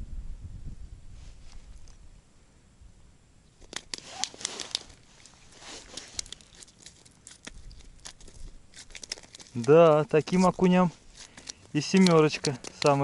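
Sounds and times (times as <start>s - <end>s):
fish flopping on wet ice: 3.6s - 13.0s.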